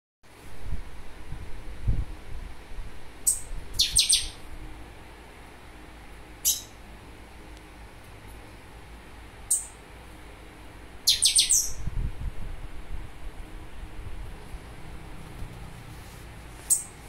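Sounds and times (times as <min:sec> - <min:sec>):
songbird chirping: 0:03.2 - 0:04.4, 0:09.5 - 0:09.8, 0:11.1 - 0:11.8.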